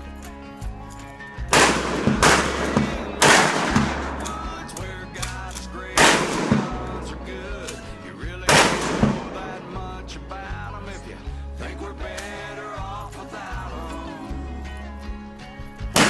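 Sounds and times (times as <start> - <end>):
shotgun blasts with echo: 1.5 - 9.9.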